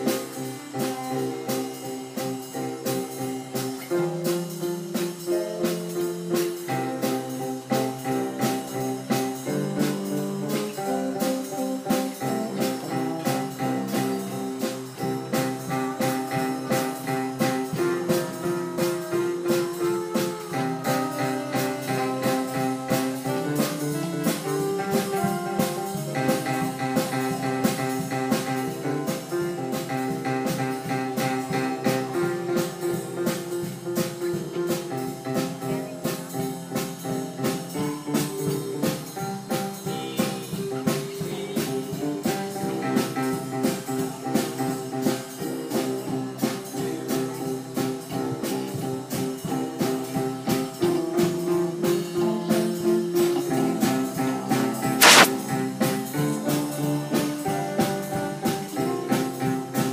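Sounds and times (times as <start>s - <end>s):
held melody notes: 0.0s - 43.7s
steady percussion beat: 0.0s - 47.5s.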